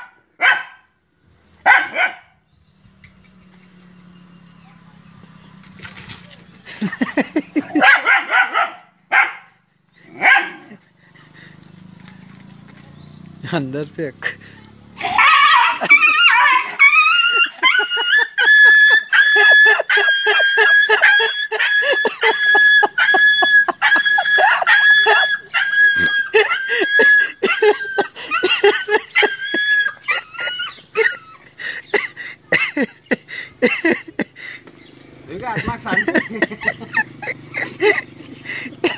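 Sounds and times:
dog yelping: 1.6 - 2.4, 7.6 - 10.8, 14.8 - 33.2.

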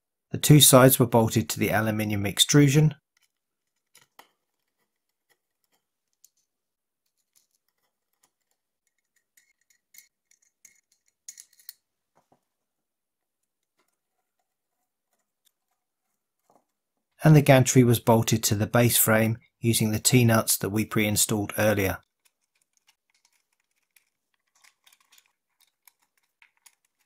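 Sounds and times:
small screws clicking and ticking: 3.1 - 6.4, 7.1 - 11.9, 22.0 - 27.0.

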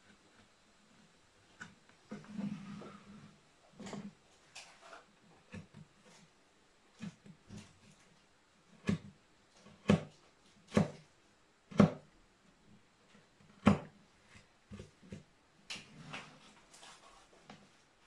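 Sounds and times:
faint clicks and scrapes: 0.0 - 8.3, 14.2 - 17.9.

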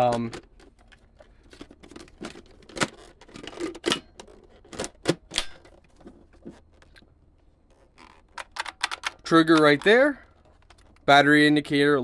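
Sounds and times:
plastic clicks and knocks: 8.2 - 11.1.

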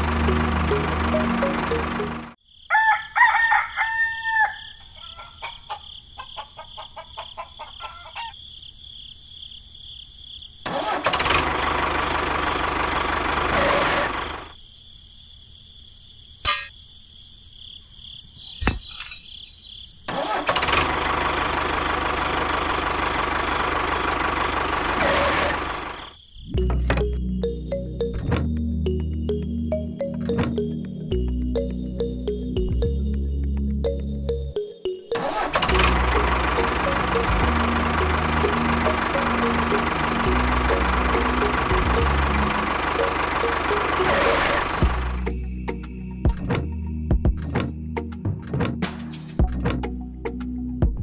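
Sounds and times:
engine-like noise: 0.0 - 2.4, 10.6 - 14.5, 20.1 - 26.8, 35.1 - 45.9
rooster crowing: 2.7 - 8.4
chicken clucking: 4.8 - 8.4.

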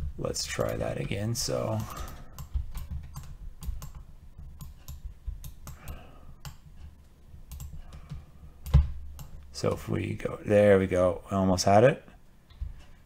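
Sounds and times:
computer mouse clicks: 1.7 - 9.4.

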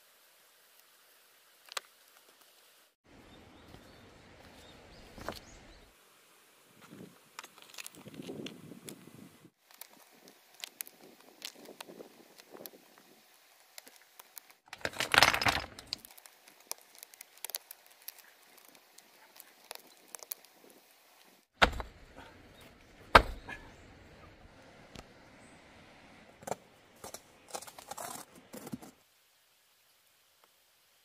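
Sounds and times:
stone clattering: 14.7 - 16.0
stones clinking and scraping: 14.7 - 20.5.

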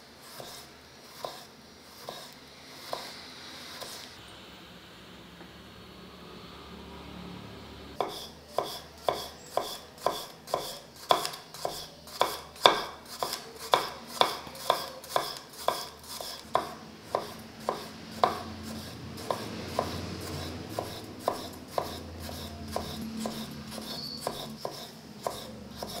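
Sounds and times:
knife slicing tomato: 0.2 - 4.1, 8.0 - 26.0
knife knocking wooden board: 8.0 - 15.9, 16.6 - 18.5.

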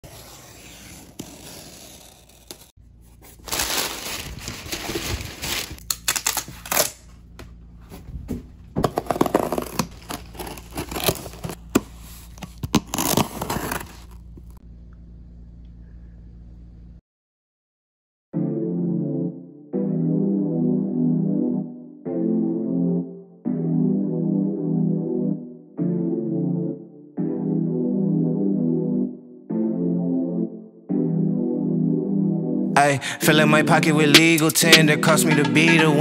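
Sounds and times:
cardboard tearing and crinkling: 0.0 - 7.1, 8.8 - 14.6
box cutter slitting tape: 0.1 - 2.7, 5.8 - 7.1, 8.8 - 14.2
faint room hum: 2.8 - 17.0.

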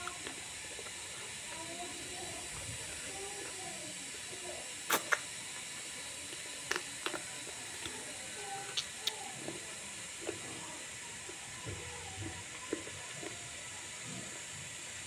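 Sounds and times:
steady hiss: 0.0 - 11.6
wet chewing mouth clicks: 4.9 - 5.4, 6.3 - 9.6.

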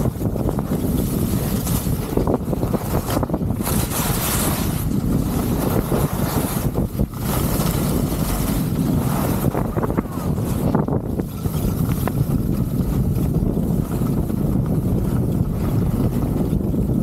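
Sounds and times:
skis carving on snow: 0.0 - 17.0
wind buffeting microphone: 0.0 - 17.0.

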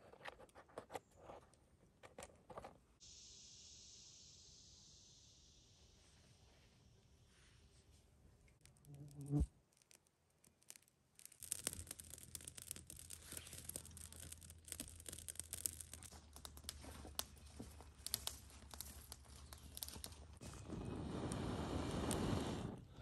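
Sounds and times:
fire crackling and popping: 8.4 - 23.0.

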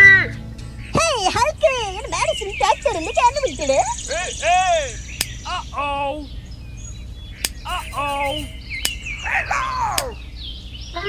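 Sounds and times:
high arching chirps: 0.0 - 11.0
sharp clicks: 4.5 - 5.5, 7.4 - 9.1, 10.0 - 10.2.

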